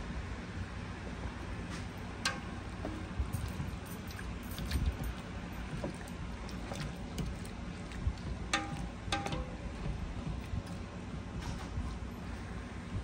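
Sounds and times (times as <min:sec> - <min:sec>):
pot boiling: 0:00.3 - 0:13.0
metal clinks: 0:03.3 - 0:05.2.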